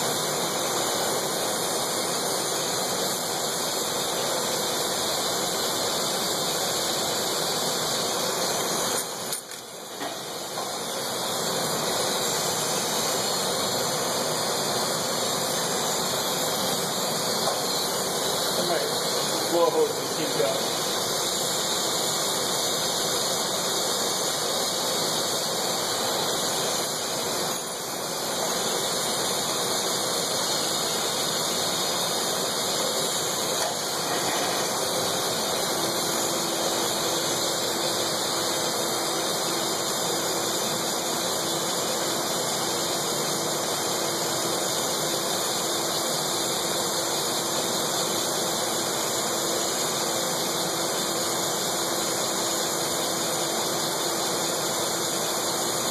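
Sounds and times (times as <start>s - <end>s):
torch flame hissing: 0.0s - 55.9s
lathe humming: 9.9s - 42.6s.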